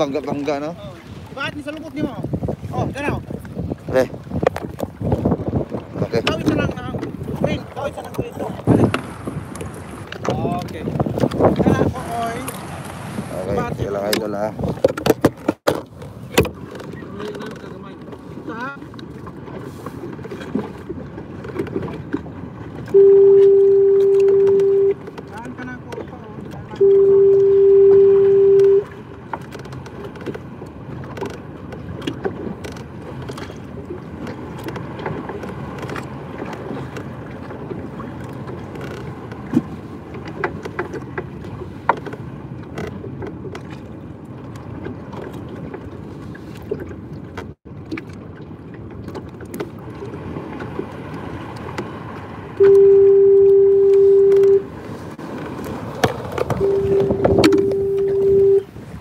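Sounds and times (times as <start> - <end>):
loud single-pitch tone: 22.9 - 25.0, 26.8 - 28.9, 52.6 - 54.7, 56.6 - 58.7
knocks and clicks: 56.0 - 58.4.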